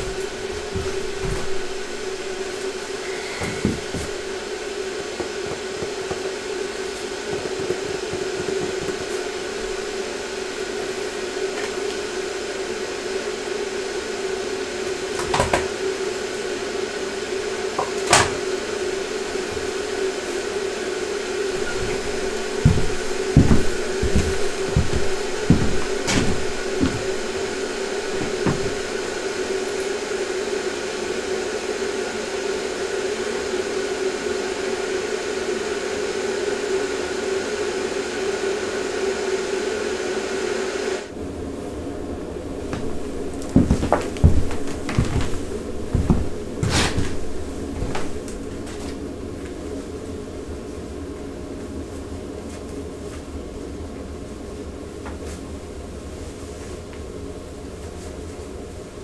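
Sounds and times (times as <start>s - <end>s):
steady mechanical hum: 0.0s - 59.0s
soft low thumps: 21.6s - 29.7s, 42.7s - 48.3s.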